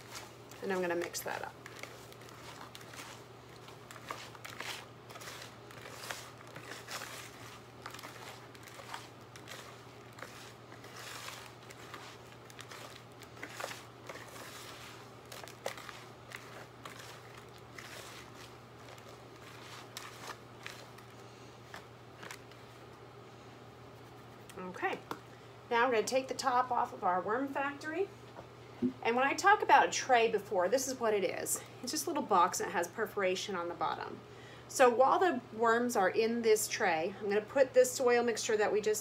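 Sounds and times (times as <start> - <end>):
hands crinkling and rustling bedding: 0.0 - 23.0.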